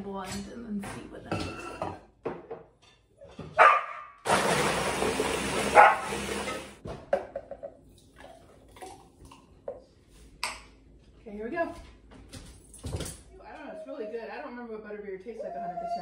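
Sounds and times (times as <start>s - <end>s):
dog barking: 3.6s - 4.2s, 5.7s - 6.1s
blender crushing ice: 4.2s - 6.8s.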